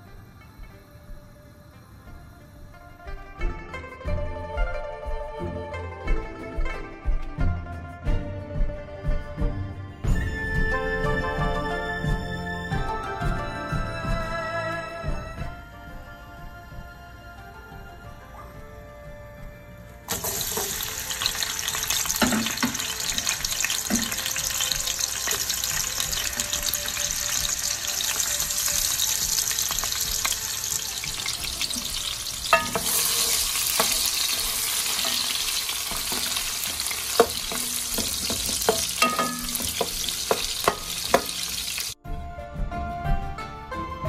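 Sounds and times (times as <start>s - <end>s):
onions sizzling in oil: 20.1s - 42.0s
wooden spoon knocking pot: 36.0s - 41.5s.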